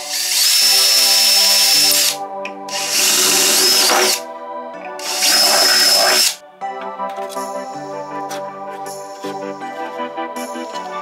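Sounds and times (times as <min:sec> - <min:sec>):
cordless drill whining: 0:00.0 - 0:04.2, 0:05.0 - 0:06.4
background music: 0:00.0 - 0:11.0.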